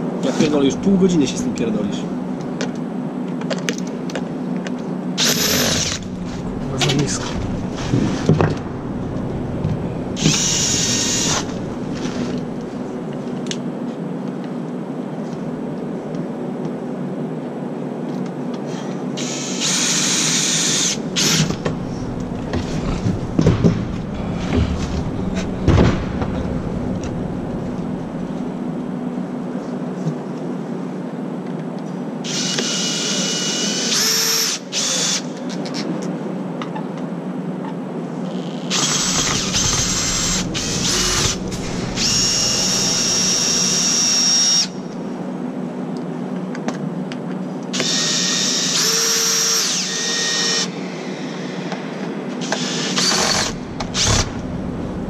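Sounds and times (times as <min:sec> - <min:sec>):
electric drill whining: 0:05.2 - 0:13.0, 0:18.7 - 0:25.7, 0:32.3 - 0:35.3, 0:38.7 - 0:44.9, 0:47.8 - 0:51.8, 0:52.4 - 0:54.6.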